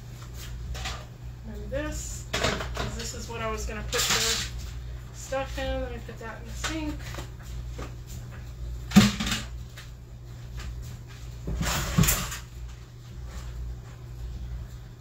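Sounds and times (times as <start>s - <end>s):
steady low hum: 0.0s - 15.0s
kitchen items clattering: 2.3s - 4.6s, 8.9s - 9.6s, 11.5s - 12.5s.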